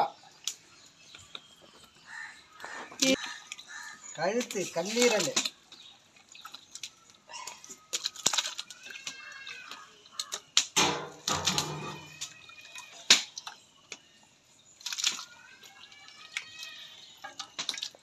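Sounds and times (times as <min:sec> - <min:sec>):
faint birds chirping: 0:00.0 - 0:10.6, 0:11.6 - 0:18.0
chicken splashing into pot: 0:06.4 - 0:13.6, 0:14.8 - 0:18.0.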